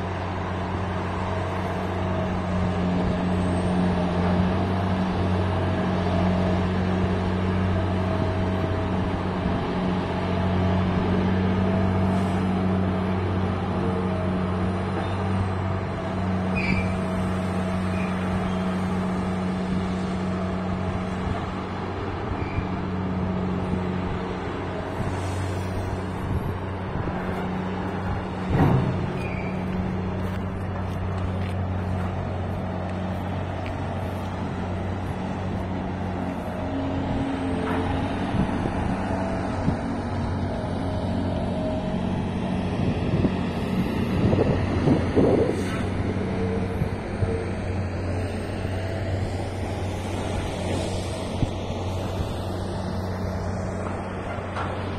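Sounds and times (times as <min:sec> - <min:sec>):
low diesel engine drone: 0:00.0 - 0:54.9
rough noisy background: 0:00.0 - 0:54.9.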